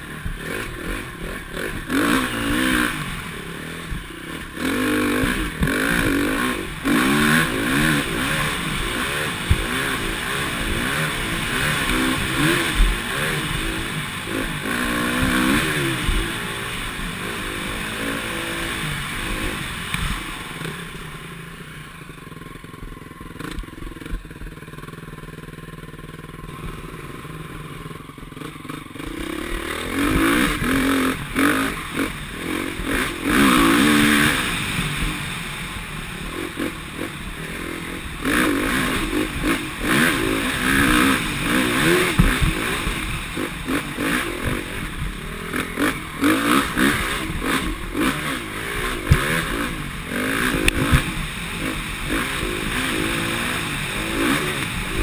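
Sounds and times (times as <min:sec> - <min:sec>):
dirt bike engine revving: 0:00.0 - 0:55.0
rattling knocks of bike: 0:41.7 - 0:43.2, 0:49.0 - 0:49.5.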